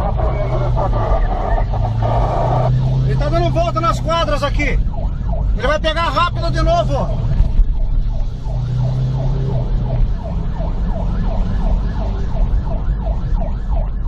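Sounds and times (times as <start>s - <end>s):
car engine and road rumble: 0.0s - 14.0s
emergency siren yelping: 0.0s - 14.0s.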